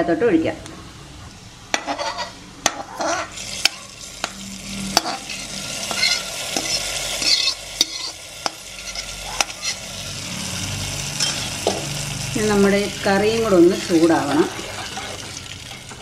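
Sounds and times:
hot oil sizzling: 1.7 - 16.0
metal spoon clinking on pan: 5.0 - 9.8.

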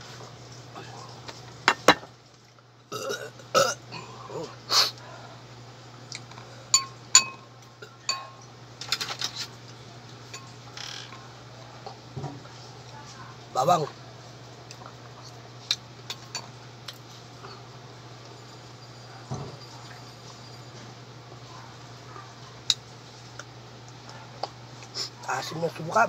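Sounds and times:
person burping: 2.9 - 4.6
metal spoon clinking on dish: 6.7 - 8.4.

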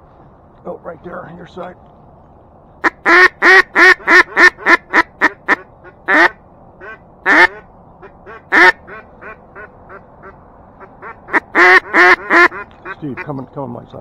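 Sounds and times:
duck call quacks: 2.8 - 13.3.

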